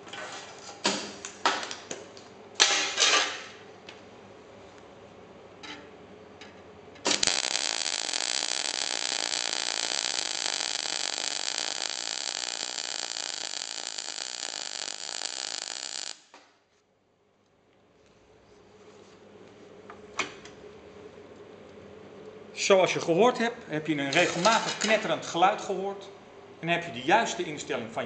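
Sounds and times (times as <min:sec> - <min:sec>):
welding arc crackling: 0:07.0 - 0:16.3.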